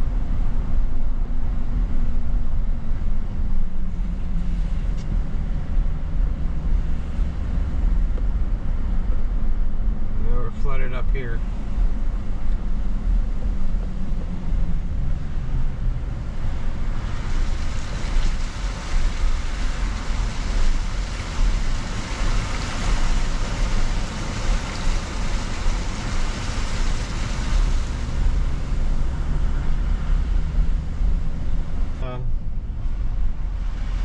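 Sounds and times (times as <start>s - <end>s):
car engine and tyres rumbling: 0.0s - 34.0s
water spraying from tyres: 11.5s - 34.0s.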